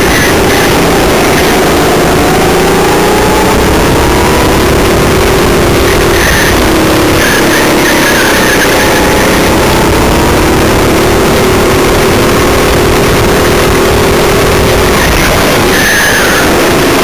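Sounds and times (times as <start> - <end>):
go-kart engine at full throttle: 0.0 - 17.0.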